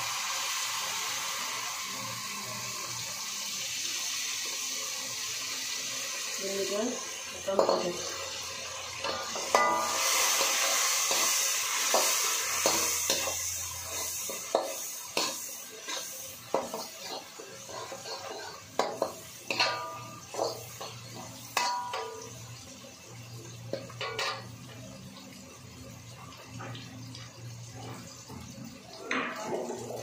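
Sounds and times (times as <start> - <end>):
sauce sizzling in a hot pan: 0.0 - 30.0
metal utensil scraping a pan: 9.0 - 22.4, 23.7 - 24.5.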